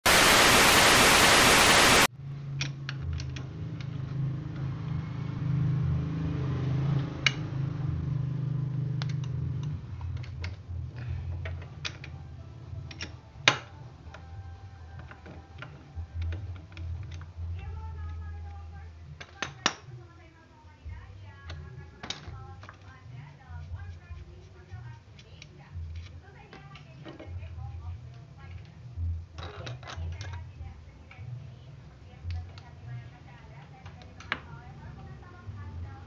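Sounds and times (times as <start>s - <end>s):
loud static hiss: 0.0s - 2.1s.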